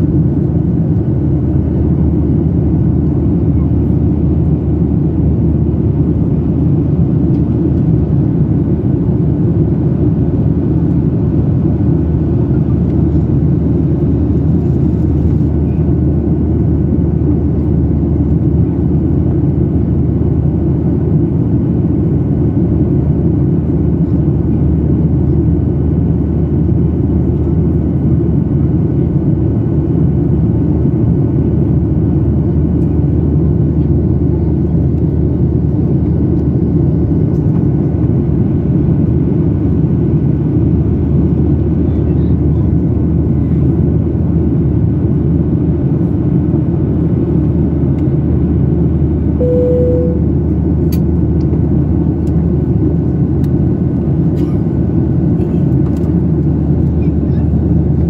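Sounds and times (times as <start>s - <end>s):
airplane cabin rumble: 0.0s - 58.0s
faint high whine: 49.4s - 50.4s.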